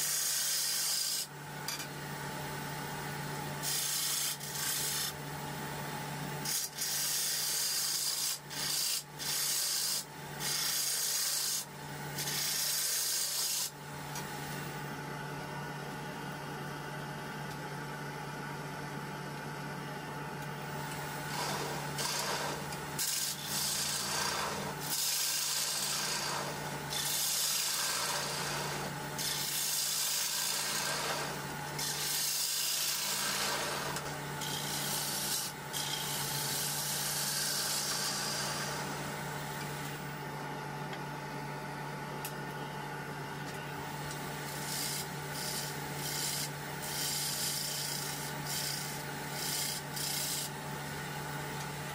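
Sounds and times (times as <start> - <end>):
lathe tool scraping wood: 0.0 - 1.3, 3.6 - 5.2, 6.4 - 13.7, 20.8 - 39.1, 44.1 - 50.6.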